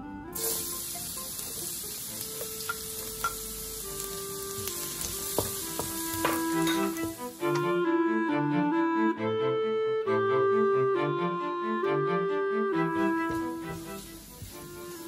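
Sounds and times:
garlic sizzling in hot oil: 0.3 - 7.8, 12.9 - 15.0
wooden spatula scraping wok: 4.4 - 7.7, 12.9 - 15.0.

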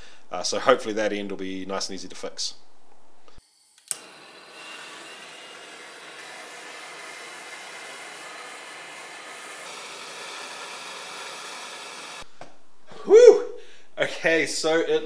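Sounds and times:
gas torch hissing flame: 3.8 - 12.3.

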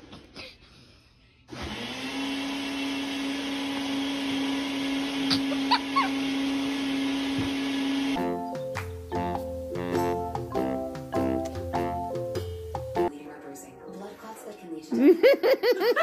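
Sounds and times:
appliance motor humming: 1.5 - 8.2
piano music: 8.1 - 15.3.

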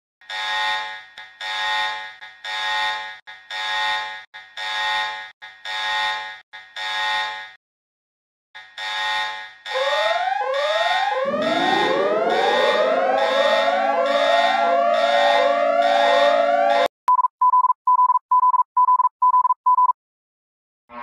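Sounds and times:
lower sliding alarm tone: 9.7 - 16.9
rising siren sweeps: 9.7 - 16.9.

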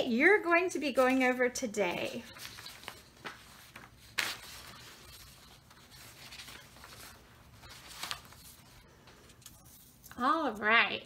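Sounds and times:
paper card rustling on table: 1.9 - 10.7.

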